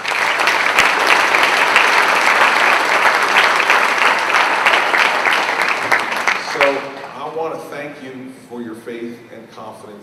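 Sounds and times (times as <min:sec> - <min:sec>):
crowd clapping loudly: 0:00.0 - 0:07.6.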